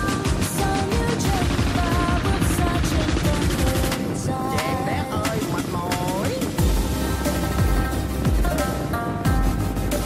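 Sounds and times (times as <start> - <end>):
instrumental music with fast beat: 5.2 - 10.0.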